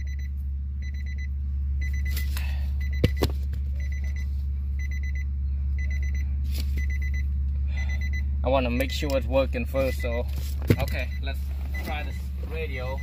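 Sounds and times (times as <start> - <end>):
steady low hum: 0.0 - 13.0
electronic warning chime beeping: 3.8 - 8.3, 10.9 - 13.0.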